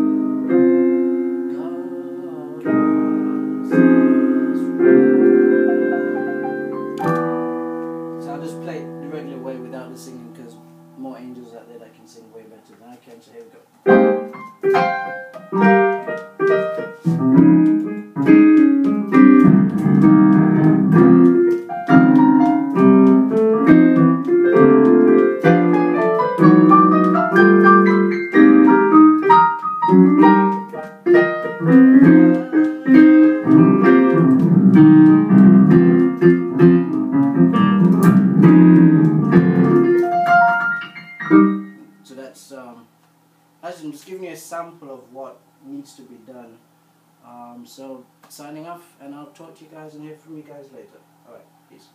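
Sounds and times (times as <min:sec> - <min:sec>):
keyboard playing slow worship song: 0:00.0 - 0:11.1, 0:13.9 - 0:42.1.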